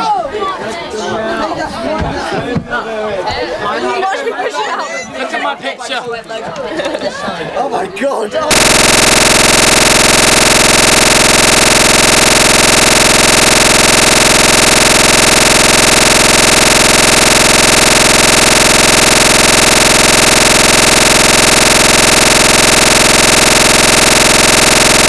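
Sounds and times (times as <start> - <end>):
harsh digital buzz: 8.5 - 25.0.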